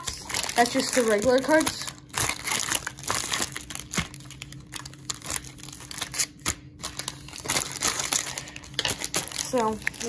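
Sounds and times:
plastic wrappers crinkling: 0.0s - 10.0s.

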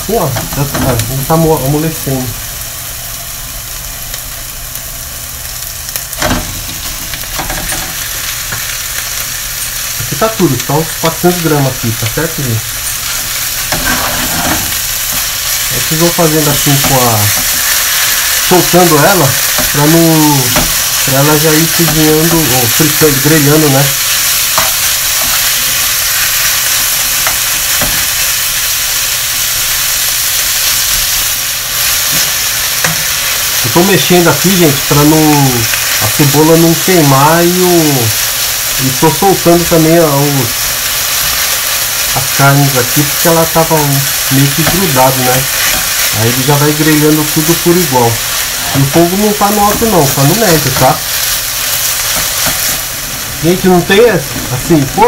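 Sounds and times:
onions sizzling in oil: 0.0s - 55.0s
spoon knocking and scraping pan: 13.1s - 15.6s, 20.5s - 21.1s, 52.0s - 52.8s.

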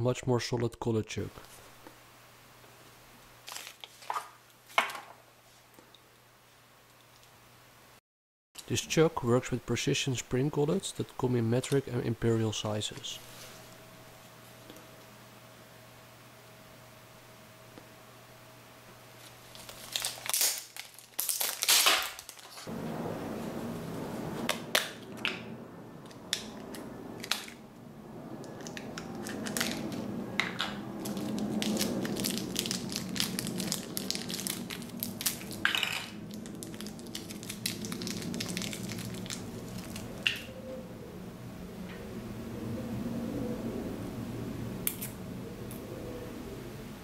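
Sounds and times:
plastic shrink wrap crinkling and tearing: 3.4s - 4.3s, 19.2s - 22.7s, 28.7s - 30.0s, 31.0s - 40.4s
thin plastic bags crinkling: 3.4s - 4.3s, 19.2s - 22.7s, 28.6s - 40.4s.

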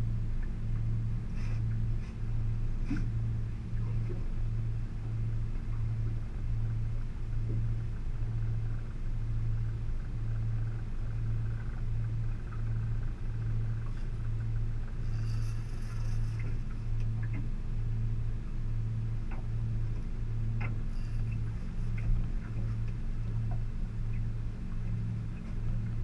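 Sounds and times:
outboard motor idling: 0.0s - 26.0s.

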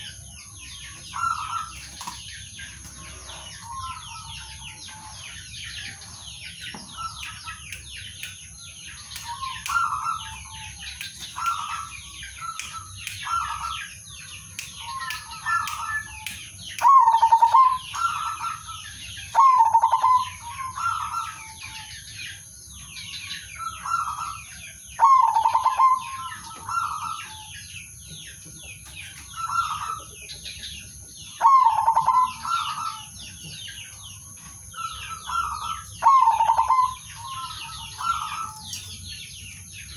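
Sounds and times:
small birds chirping: 0.0s - 39.9s
doves cooing: 16.8s - 21.8s, 25.0s - 27.5s, 31.3s - 33.1s, 34.7s - 38.6s.

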